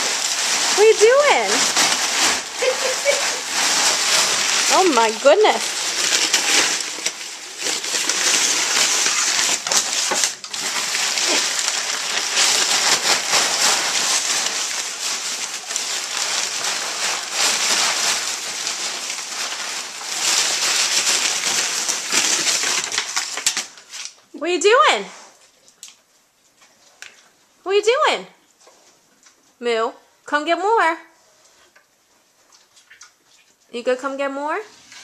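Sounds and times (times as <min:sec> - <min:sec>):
packing paper rustling: 0:00.0 - 0:24.3.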